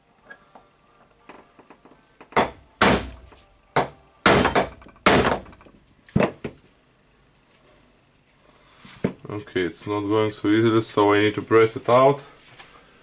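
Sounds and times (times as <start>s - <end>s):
hammer striking steel punch: 2.3s - 6.4s.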